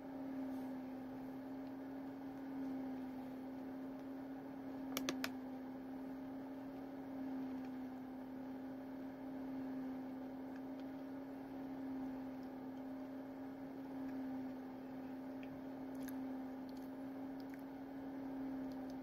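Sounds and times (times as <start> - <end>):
low electrical hum: 0.0 - 19.0
quick sharp clicks: 4.9 - 5.4.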